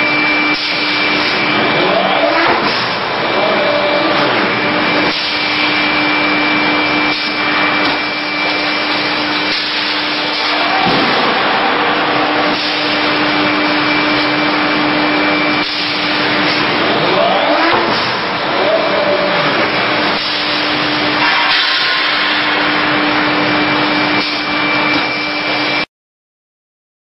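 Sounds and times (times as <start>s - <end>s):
constant machine hum: 0.0s - 25.8s
rising whine: 0.0s - 25.9s
loud rushing hiss: 4.0s - 17.0s.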